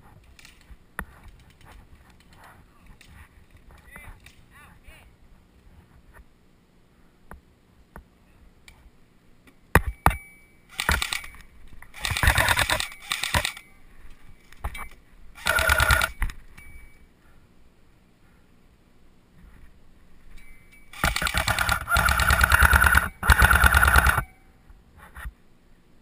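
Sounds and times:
airsoft rifle full-auto bursts: 0:10.7 - 0:11.3, 0:11.9 - 0:13.6, 0:15.4 - 0:16.2, 0:20.9 - 0:24.3.

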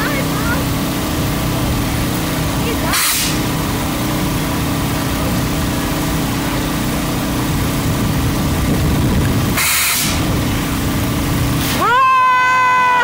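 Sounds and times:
small engine humming: 0:00.0 - 0:13.0
sharp hiss burst: 0:02.9 - 0:03.4, 0:09.6 - 0:10.3
loud even hiss: 0:02.9 - 0:03.5, 0:09.5 - 0:10.8.

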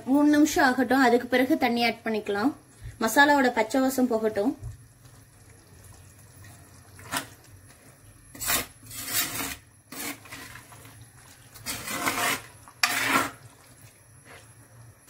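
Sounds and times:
spatula scraping clay pot: 0:08.3 - 0:13.6.

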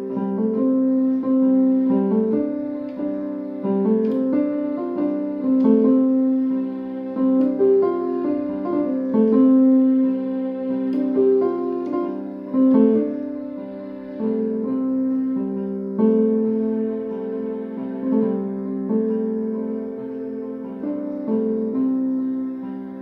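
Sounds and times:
piano music with slow held notes: 0:00.0 - 0:23.0.

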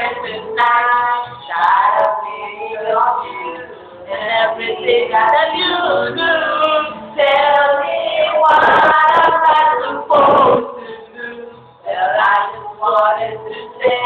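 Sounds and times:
man singing pop song: 0:04.4 - 0:10.8.

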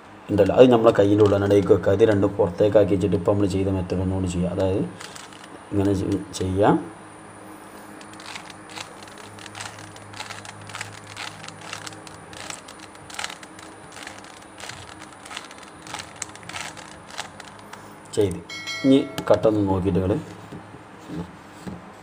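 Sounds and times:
puzzle cube clicking and rattling: 0:05.0 - 0:06.3, 0:08.0 - 0:18.4.

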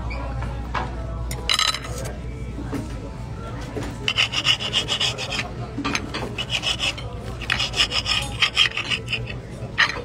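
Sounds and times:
rapid rasping scraping strokes: 0:04.1 - 0:05.5, 0:06.2 - 0:10.0.

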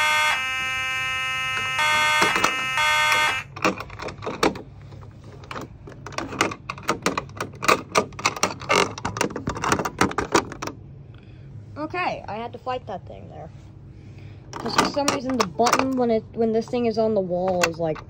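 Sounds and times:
fire alarm horns pulsing: 0:00.0 - 0:03.6.

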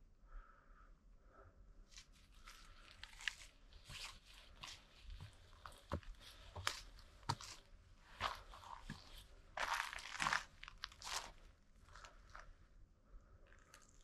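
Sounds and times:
footsteps crunching on dry trail: 0:02.4 - 0:12.4.

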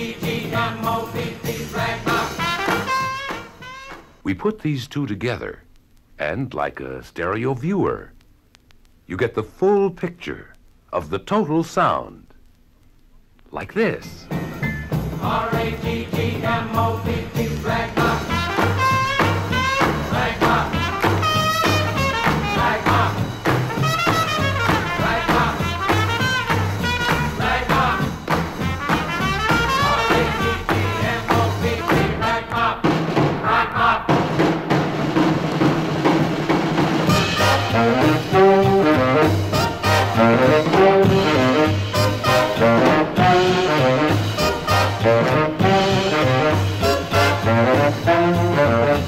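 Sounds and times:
swing band music with brass: 0:00.0 - 0:04.2, 0:14.2 - 0:49.0.

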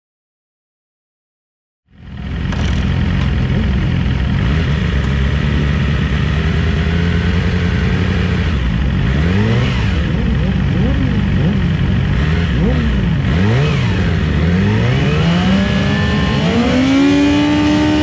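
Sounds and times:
motorcycle engine idling: 0:01.9 - 0:14.6.

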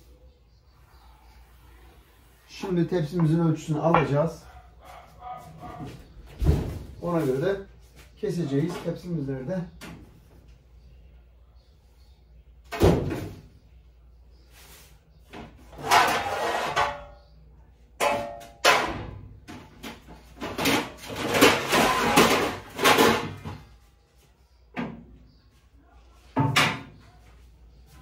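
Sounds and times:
baking trays clattering: 0:15.3 - 0:17.2, 0:18.0 - 0:23.8, 0:26.3 - 0:27.3
cupboards and drawers opening and shutting: 0:18.7 - 0:23.6.

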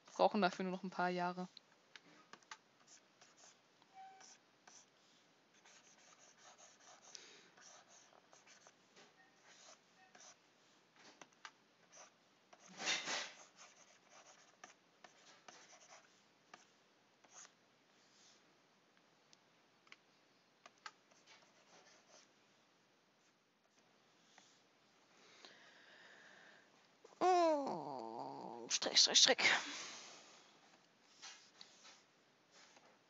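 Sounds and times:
stylus scratching on tablet: 0:02.8 - 0:08.8, 0:09.4 - 0:10.4, 0:11.9 - 0:17.5, 0:21.1 - 0:22.3.

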